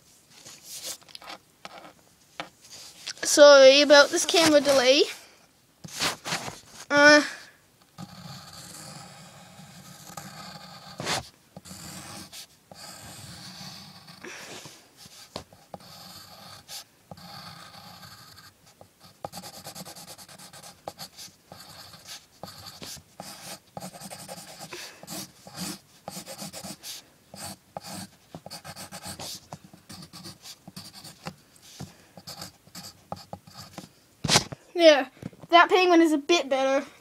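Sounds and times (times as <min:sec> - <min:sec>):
pencil scratching on paper: 0:02.8 - 0:05.0, 0:08.0 - 0:33.8.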